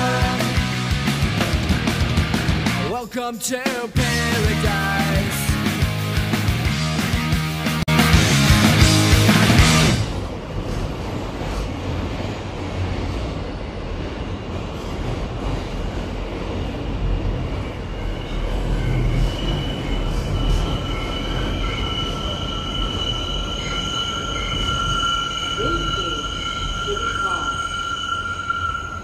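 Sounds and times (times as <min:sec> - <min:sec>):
subway train rumbling: 0:00.0 - 0:29.0
wheels squealing: 0:14.2 - 0:29.0.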